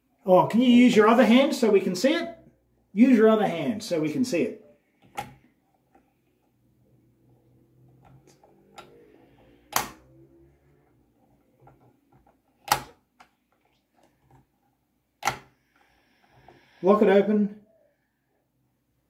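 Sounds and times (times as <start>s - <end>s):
sharp plastic clicks: 9.7s - 10.0s, 11.6s - 13.7s, 15.2s - 15.6s.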